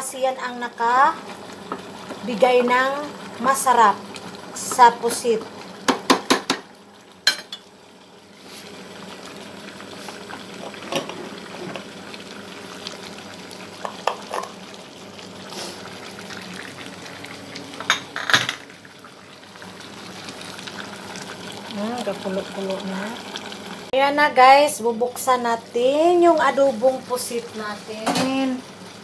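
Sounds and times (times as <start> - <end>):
sauce bubbling in a pan: 0.3 - 24.0
utensil knocking on pan: 5.9 - 6.6.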